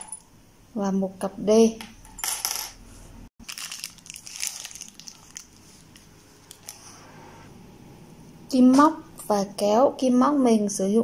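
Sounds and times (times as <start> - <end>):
rustling and crinkling supplies: 3.4 - 6.9.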